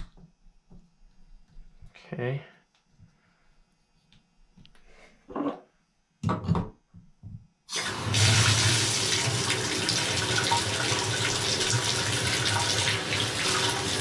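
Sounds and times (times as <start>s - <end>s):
water running from tub spout: 7.7s - 14.0s.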